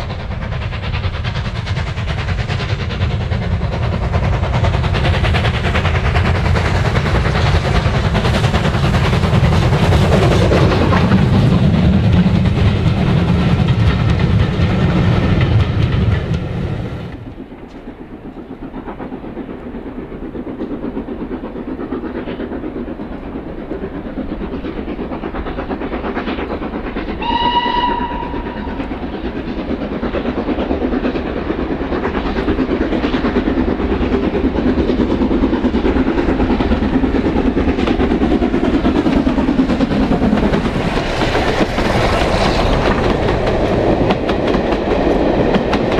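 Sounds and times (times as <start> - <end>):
approaching steam train: 0.0 - 45.9
steam locomotive exhaust beats: 0.0 - 45.9
steam whistle blast: 27.2 - 28.8.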